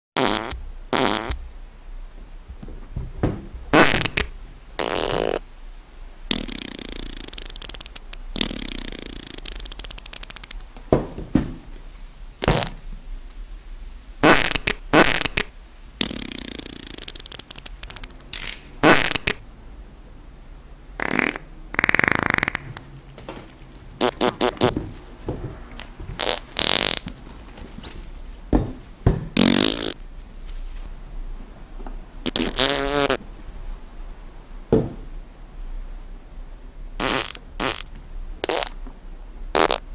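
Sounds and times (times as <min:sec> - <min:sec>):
fart sounds: 0:00.2 - 0:01.4, 0:03.7 - 0:05.4, 0:06.3 - 0:10.6, 0:12.4 - 0:12.8, 0:14.2 - 0:19.4, 0:21.0 - 0:22.9, 0:24.0 - 0:24.8, 0:26.2 - 0:27.2, 0:29.4 - 0:30.0, 0:32.2 - 0:33.2, 0:37.0 - 0:38.8, 0:39.5 - 0:39.9.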